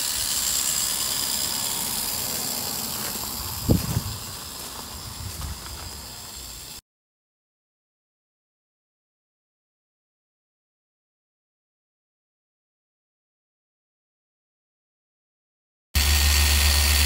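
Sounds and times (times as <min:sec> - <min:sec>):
steady hiss: 0:00.0 - 0:06.8.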